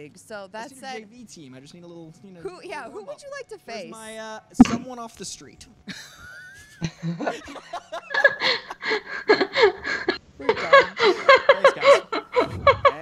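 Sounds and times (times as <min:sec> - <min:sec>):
group of people laughing: 0:05.9 - 0:13.0.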